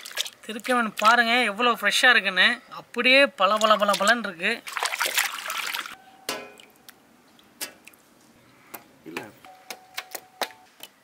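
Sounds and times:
hands splashing in bowl of water: 0:00.0 - 0:01.2, 0:03.5 - 0:06.0.

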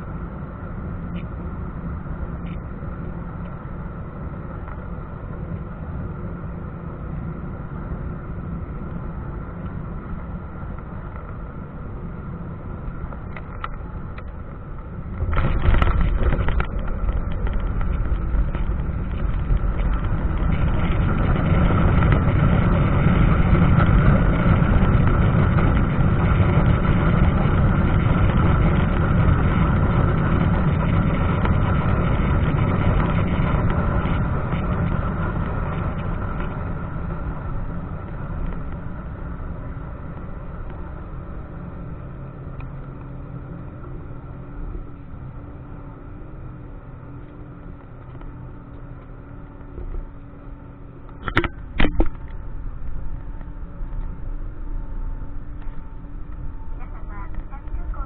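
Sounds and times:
airliner cabin engine hum: 0:00.0 - 0:58.0
reverse thrust engine rumble: 0:00.0 - 0:58.0
wheels touching down with rattle: 0:12.9 - 0:41.9.

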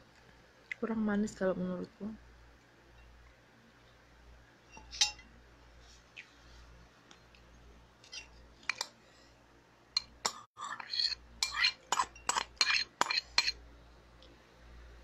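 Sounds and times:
spoon clinking on a ceramic bowl: 0:04.7 - 0:05.3, 0:10.8 - 0:13.6.

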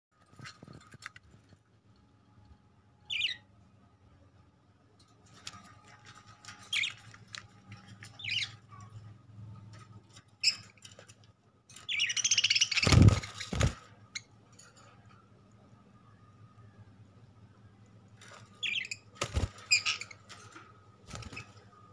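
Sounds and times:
budgerigars chirping: 0:03.1 - 0:03.4, 0:08.0 - 0:08.8, 0:11.8 - 0:14.3, 0:18.6 - 0:20.3.

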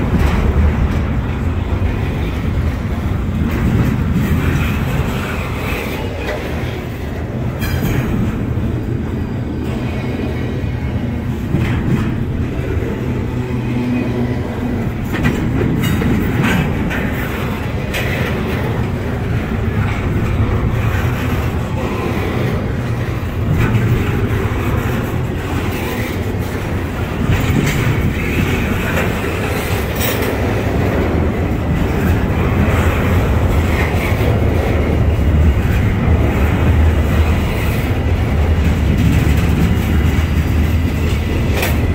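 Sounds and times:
freight train rumbling past: 0:00.0 - 0:41.9
wheels clacking over rail joints: 0:00.0 - 0:41.9.

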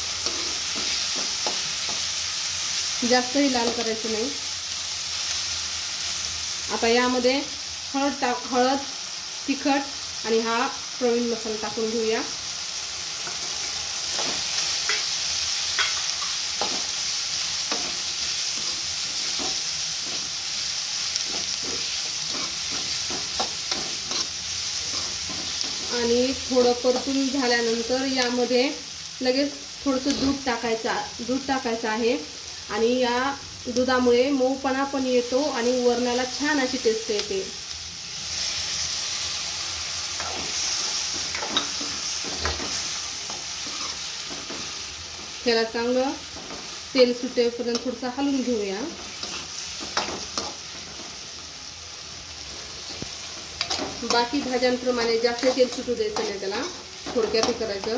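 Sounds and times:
food sizzling in oil: 0:00.0 - 0:57.9
metal spoon scraping a pan: 0:00.2 - 0:02.1, 0:13.2 - 0:25.9, 0:40.1 - 0:44.8, 0:48.9 - 0:51.2, 0:52.8 - 0:57.9.

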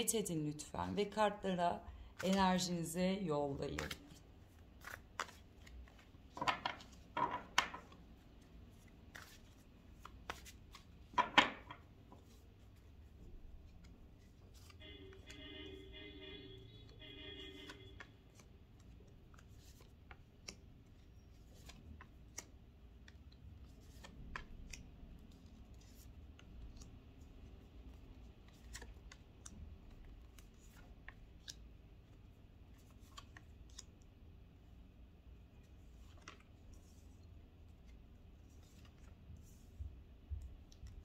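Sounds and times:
cards shuffling clicks: 0:03.8 - 0:08.0.

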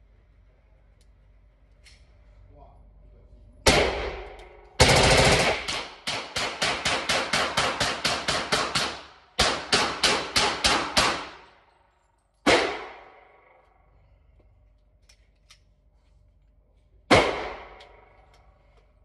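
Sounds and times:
rifle shots echoing indoors: 0:03.6 - 0:14.0, 0:17.0 - 0:18.7.

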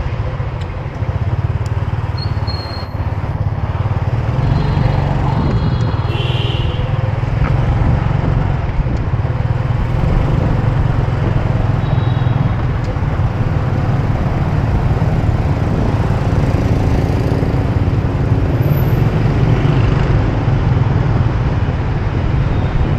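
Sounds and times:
wind buffeting microphone: 0:05.0 - 0:06.3, 0:06.9 - 0:22.9.

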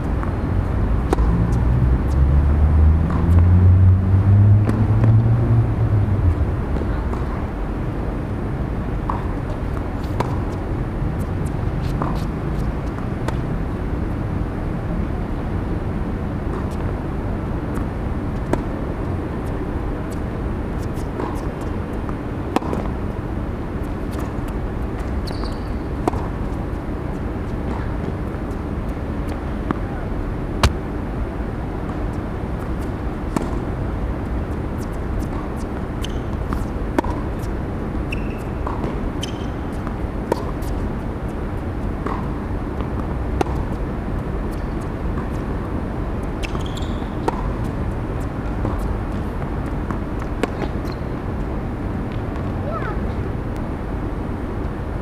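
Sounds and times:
background hum: 0:04.6 - 0:55.0
tennis ball struck by rackets: 0:20.9 - 0:23.0, 0:24.1 - 0:28.5, 0:30.6 - 0:31.0, 0:32.7 - 0:33.7, 0:34.4 - 0:37.5, 0:38.1 - 0:43.7, 0:46.3 - 0:51.2.

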